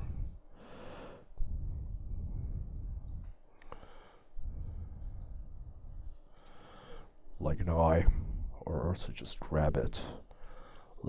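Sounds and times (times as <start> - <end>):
computer mouse clicks: 3.0 - 5.4.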